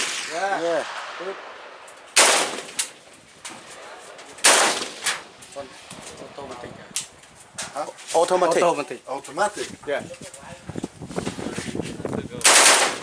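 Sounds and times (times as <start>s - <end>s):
faint gunshot echo: 0.0s - 3.0s
rifle shots: 0.0s - 3.2s, 4.4s - 5.3s, 12.4s - 13.0s.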